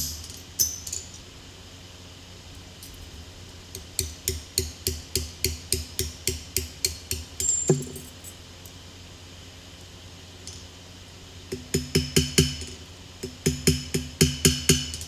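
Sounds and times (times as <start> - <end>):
hammer striking steel on anvil: 0.0 - 1.0, 4.0 - 8.1, 11.5 - 15.0
steady low hum: 0.0 - 15.0.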